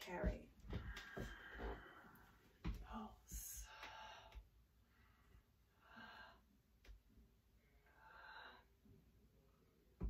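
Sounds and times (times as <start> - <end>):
faint breaths: 0.7 - 6.6.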